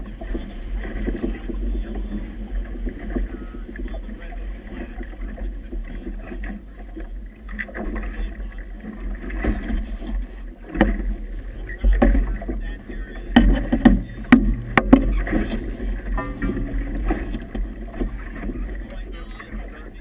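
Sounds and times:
water splashing against boat hull: 0.0 - 20.0
sharp knocks: 13.4 - 17.7.

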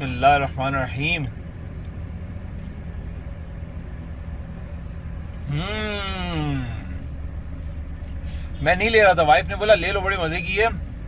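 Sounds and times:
car engine idling: 0.0 - 11.0
man humming mmm: 5.4 - 7.1.

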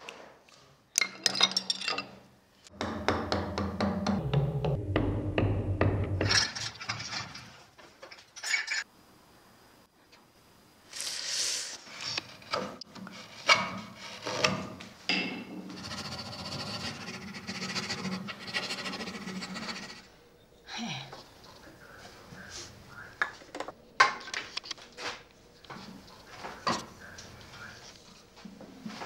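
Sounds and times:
gouge scraping wood: 15.7 - 20.1
rasping on wood: 15.7 - 20.1.

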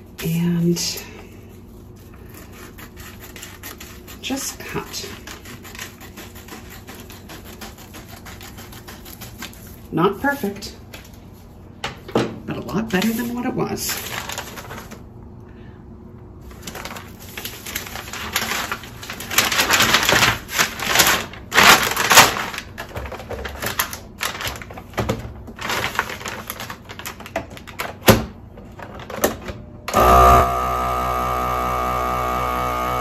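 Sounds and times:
plastic bag crinkling: 13.1 - 15.1, 16.4 - 28.0
vacuum pump humming: 29.8 - 33.0.

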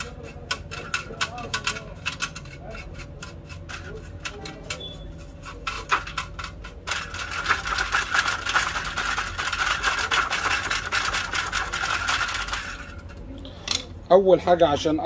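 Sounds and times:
paintbrush scrubbing metal: 0.0 - 13.0.

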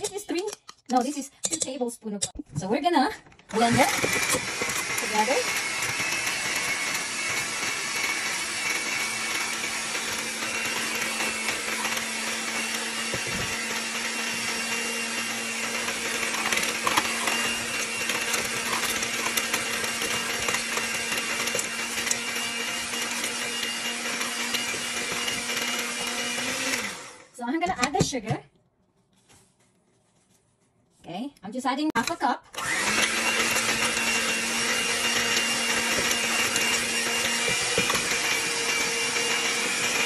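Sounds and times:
electric mixer running: 3.5 - 27.9, 32.5 - 40.0.

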